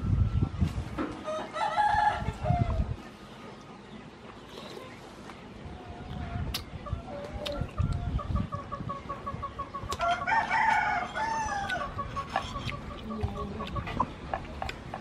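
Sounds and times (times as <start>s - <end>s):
rooster crowing: 10.0s - 11.9s.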